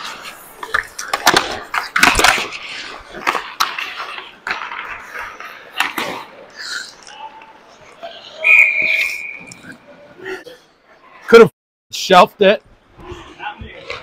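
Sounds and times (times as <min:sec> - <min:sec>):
hockey sticks and puck knocks: 0:00.0 - 0:06.3
skates scraping on ice: 0:00.0 - 0:07.0.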